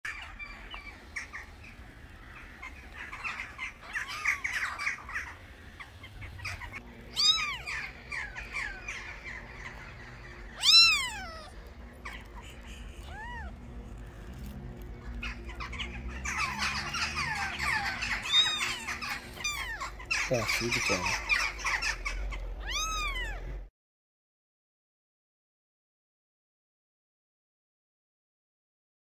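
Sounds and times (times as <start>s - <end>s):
kittens mewing: 2.6s - 23.7s.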